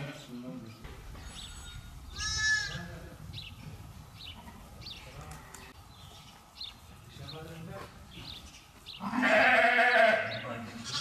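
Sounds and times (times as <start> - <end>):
sheep bleating: 1.4 - 2.8, 9.0 - 11.0.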